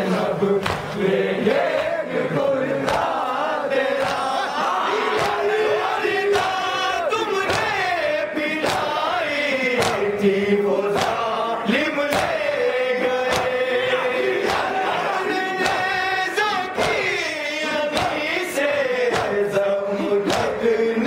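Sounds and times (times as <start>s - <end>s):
men chanting a lament: 0.0s - 21.0s
hands slapping chests: 0.6s - 1.0s, 2.8s - 3.2s, 4.0s - 4.4s, 5.0s - 5.6s, 7.4s - 7.9s, 8.6s - 10.2s, 10.9s - 11.3s, 12.1s - 12.5s, 13.1s - 13.7s, 14.4s - 17.3s, 17.9s - 19.6s, 20.2s - 20.6s.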